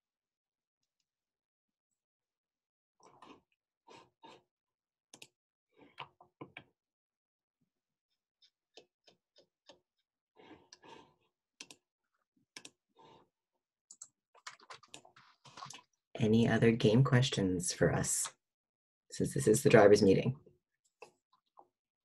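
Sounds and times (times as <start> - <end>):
faint keyboard typing: 13.9 - 15.8.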